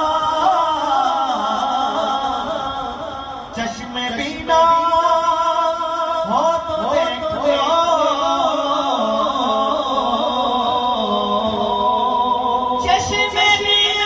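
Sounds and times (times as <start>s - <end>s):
men singing devotional song: 0.0s - 14.0s.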